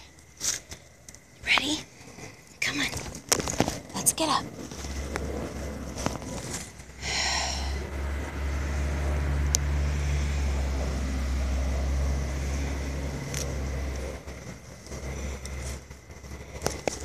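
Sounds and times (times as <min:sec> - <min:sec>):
vehicle engine rumble passing: 0:03.1 - 0:17.0.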